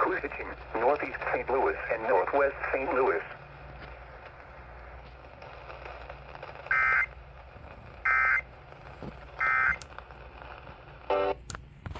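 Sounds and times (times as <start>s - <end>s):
low radio hum: 0.0s - 11.9s
harsh data bursts from radio speaker: 5.4s - 7.2s, 8.0s - 8.5s, 9.4s - 9.8s.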